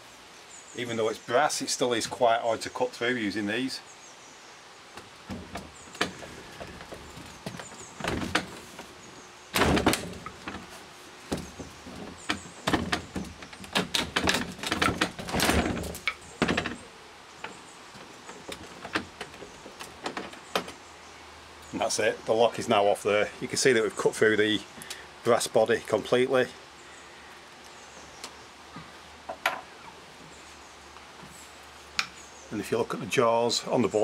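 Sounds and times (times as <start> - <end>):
metal knocks against hasp: 5.0 - 8.9.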